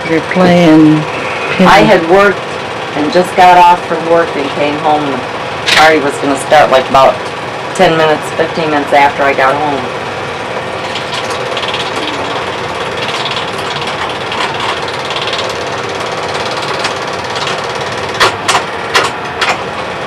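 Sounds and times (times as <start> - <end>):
film projector clatter: 0.0 - 7.8, 8.4 - 20.0
sharp knocks in projector: 18.2 - 19.6.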